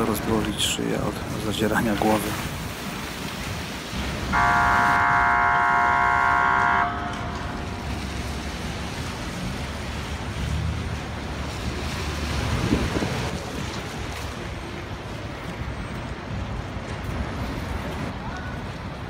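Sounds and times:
passing vehicles rumbling: 0:00.0 - 0:19.0
wind buffeting microphone: 0:12.0 - 0:16.8.

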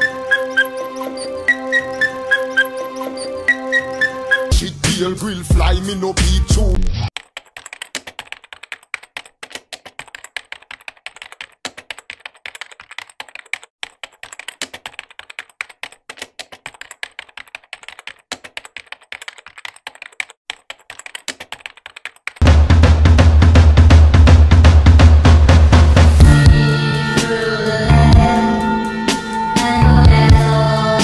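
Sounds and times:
loud drum-heavy music: 0:04.5 - 0:06.8, 0:22.4 - 0:31.0
computer keyboard typing: 0:07.1 - 0:22.4.

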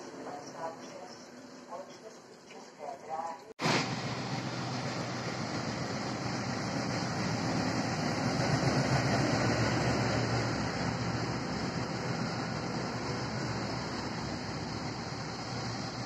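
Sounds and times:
diesel locomotive running: 0:00.0 - 0:02.1, 0:03.6 - 0:16.0
train wheels rolling: 0:03.6 - 0:16.0.

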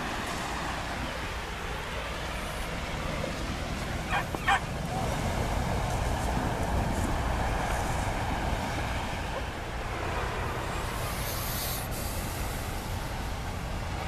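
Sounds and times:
churning water: 0:00.0 - 0:11.0
boat engine rumbling: 0:00.0 - 0:14.0
wind: 0:00.0 - 0:14.0.

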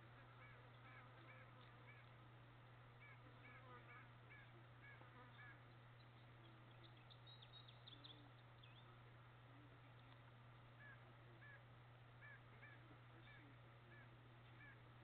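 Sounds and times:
distant bird calls: 0:00.0 - 0:15.0
low hum: 0:00.0 - 0:15.0
faint high chirps: 0:04.4 - 0:09.0.

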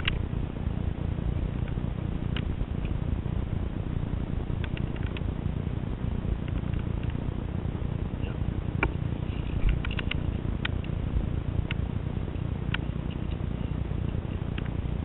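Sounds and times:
wind rumble on microphone: 0:00.0 - 0:15.0
light sharp clicks: 0:04.6 - 0:05.3, 0:08.8 - 0:11.0, 0:12.7 - 0:13.7.

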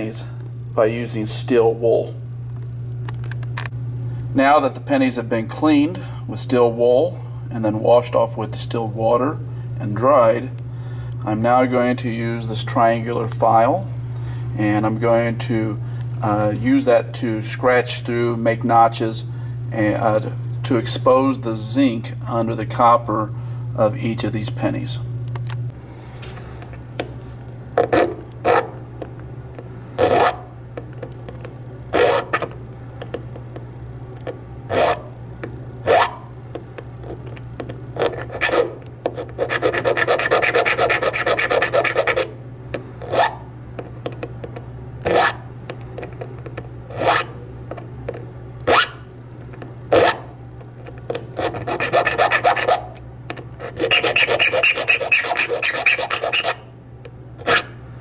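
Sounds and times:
steady low hum: 0:00.0 - 0:58.0
file rasping on metal: 0:27.9 - 0:28.7, 0:30.0 - 0:30.4, 0:32.0 - 0:32.5, 0:34.7 - 0:35.1, 0:35.9 - 0:36.2, 0:38.0 - 0:42.3, 0:43.0 - 0:43.4, 0:45.1 - 0:45.4, 0:46.9 - 0:47.3, 0:50.0 - 0:50.3, 0:51.4 - 0:53.0, 0:53.6 - 0:56.6, 0:57.4 - 0:57.7.

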